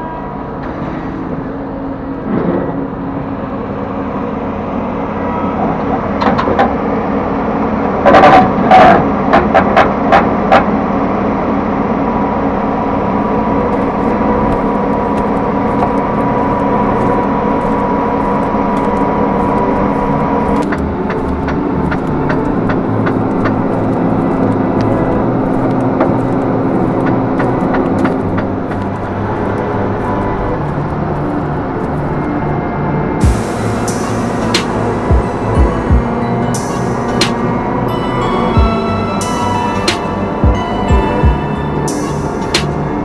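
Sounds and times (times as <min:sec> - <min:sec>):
combine harvester running: 0:00.2 - 0:43.0
thin steady whine: 0:11.2 - 0:43.0.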